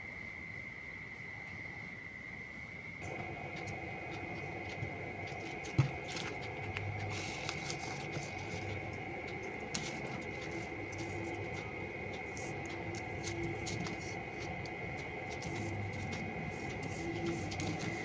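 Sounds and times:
steady high whine: 3.0 - 18.0.

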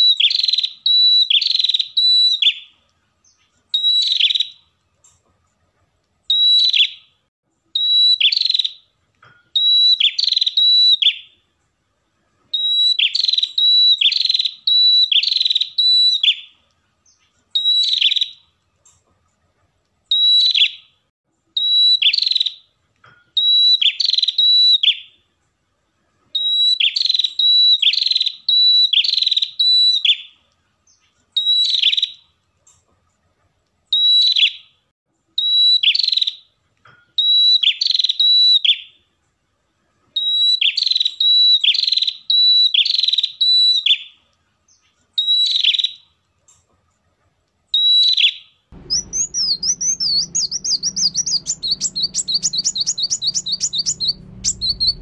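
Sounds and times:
bird singing shrill phrases: 0.0 - 2.7, 3.3 - 4.7, 6.3 - 7.1, 7.8 - 8.9, 9.6 - 11.4, 12.6 - 18.4, 21.6 - 22.7, 23.4 - 25.2, 26.4 - 32.2, 37.2 - 39.0, 40.2 - 46.1, 47.8 - 55.0.

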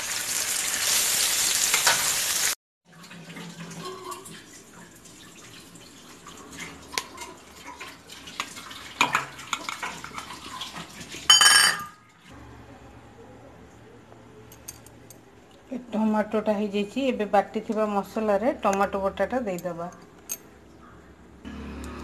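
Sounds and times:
steel bowls clinking and knocking: 11.3 - 12.0.

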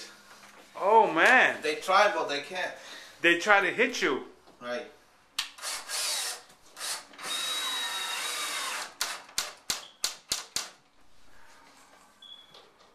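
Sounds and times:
cordless drill driving screws: 5.6 - 9.5.

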